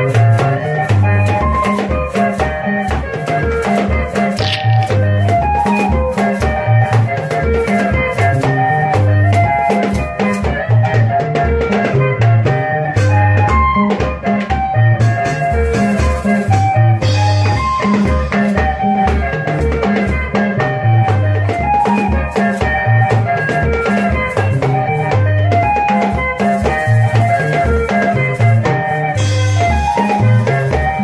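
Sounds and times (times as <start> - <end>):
drum kit: 0.0 - 31.0
electric guitar lines: 0.0 - 31.0
dance band playing: 0.1 - 31.0
shaker: 3.2 - 8.6, 15.7 - 18.6, 25.9 - 31.0
bass line: 4.2 - 5.7.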